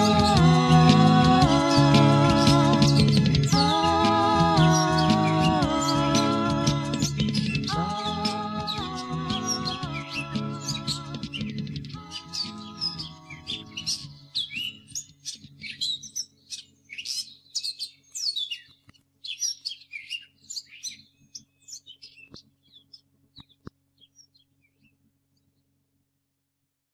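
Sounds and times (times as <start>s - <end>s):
held musical chord: 0.0s - 14.4s
birds chirping and trilling: 0.0s - 25.7s.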